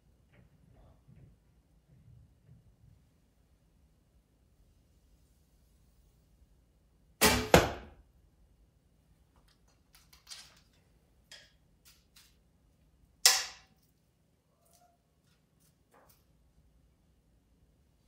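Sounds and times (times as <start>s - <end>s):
arrow thunk into target: 7.2s - 7.9s
sharp crack: 13.2s - 13.8s.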